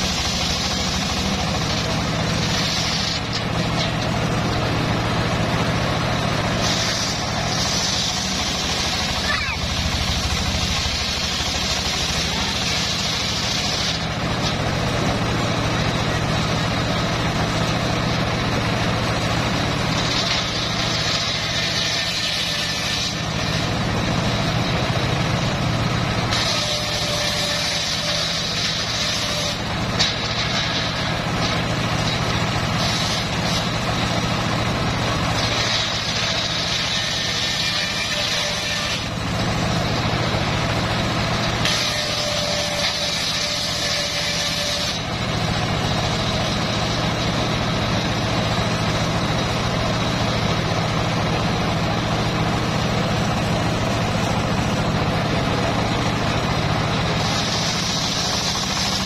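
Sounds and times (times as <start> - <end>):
circular saw blade cutting wood: 0.0 - 59.0
engine running: 0.0 - 59.0.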